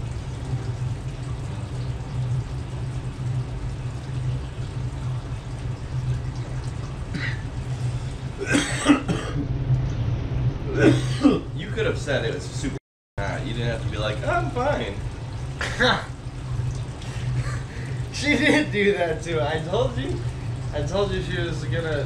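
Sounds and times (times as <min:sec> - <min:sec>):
low hum: 0:00.0 - 0:22.0
person clearing throat: 0:07.1 - 0:07.4, 0:08.4 - 0:09.4, 0:10.7 - 0:11.5, 0:15.6 - 0:16.1
person coughing harshly: 0:08.4 - 0:09.4, 0:10.7 - 0:11.5, 0:15.6 - 0:16.1.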